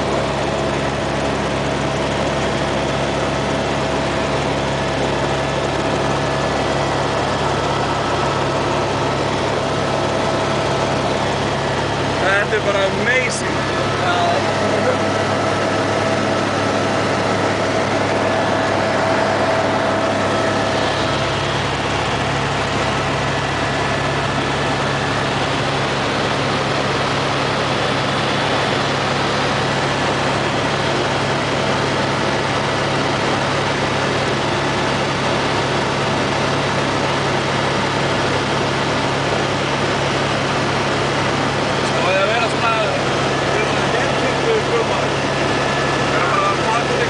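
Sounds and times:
helicopter engine and rotor drone: 0.0 - 47.0
rushing air: 13.4 - 25.1.

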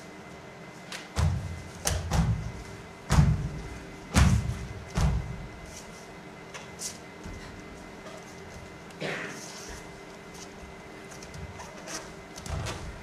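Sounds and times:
heavy thumps with sharp click: 1.2 - 5.4.

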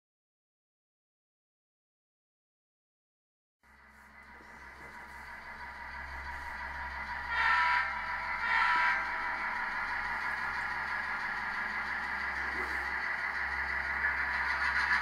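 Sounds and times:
model train running: 3.7 - 15.0
model train horn blasts: 7.0 - 10.2.

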